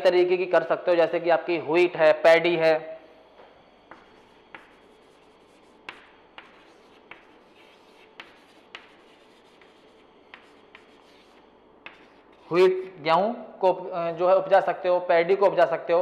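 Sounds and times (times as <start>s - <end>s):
chalk tapping on a board: 3.9s - 12.5s
chalk scratching on a blackboard: 3.9s - 12.6s.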